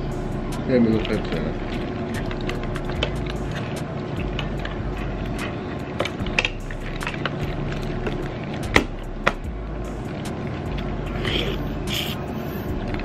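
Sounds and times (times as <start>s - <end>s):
steady background hum: 0.0s - 13.0s.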